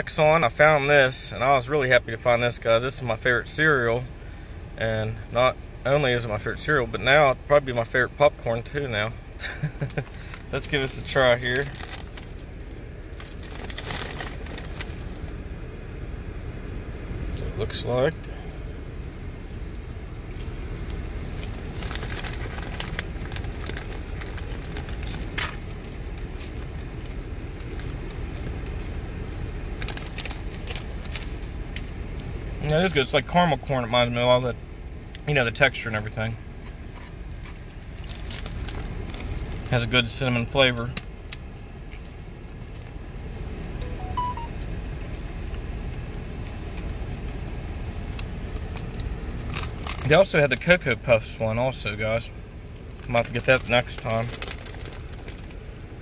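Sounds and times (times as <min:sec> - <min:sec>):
steady low rumble: 0:00.0 - 0:56.0
popcorn crunching: 0:09.4 - 0:15.3, 0:20.4 - 0:32.4, 0:36.6 - 0:39.8, 0:46.7 - 0:50.7, 0:52.8 - 0:55.9
snack bag crinkling: 0:09.6 - 0:10.7, 0:11.5 - 0:15.3, 0:21.3 - 0:28.8, 0:29.4 - 0:32.4, 0:37.4 - 0:39.7, 0:47.4 - 0:50.2, 0:52.8 - 0:55.8
rising electronic beep tones: 0:43.8 - 0:44.6.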